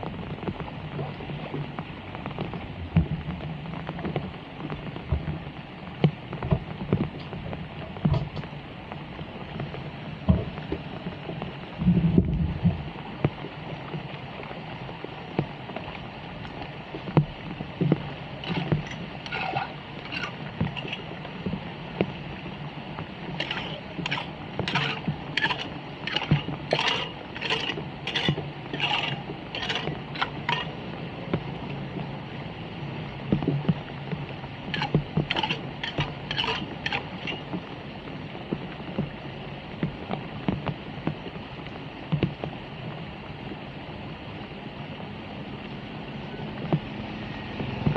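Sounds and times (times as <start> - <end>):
water running over drain grate: 12.5 - 38.0
tool scraping and splashing grate: 18.4 - 21.2, 23.4 - 30.8, 34.7 - 37.5.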